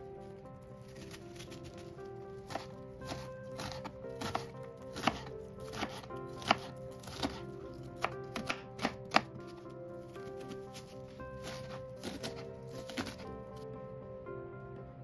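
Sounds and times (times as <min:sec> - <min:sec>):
soft background music: 0:00.0 - 0:15.0
knife strikes on cutting board: 0:02.5 - 0:07.4, 0:08.0 - 0:09.3.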